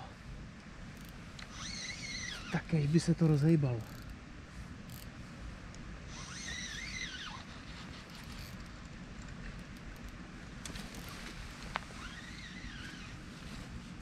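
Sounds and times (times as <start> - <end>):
wavering high whine: 0.0 - 14.0
fishing reel handling noise: 1.0 - 2.6, 3.8 - 4.2, 4.9 - 5.1, 6.1 - 11.4.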